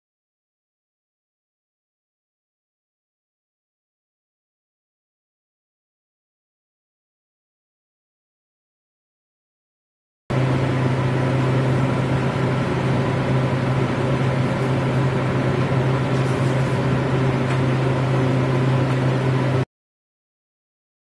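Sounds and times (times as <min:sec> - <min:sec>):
oven blower droning: 0:10.3 - 0:19.7.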